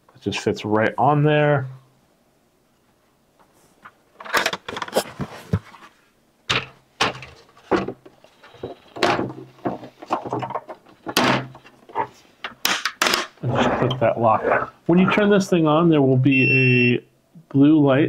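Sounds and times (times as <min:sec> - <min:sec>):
plastic parts clacking and knocking: 0:04.2 - 0:05.7, 0:06.5 - 0:13.4.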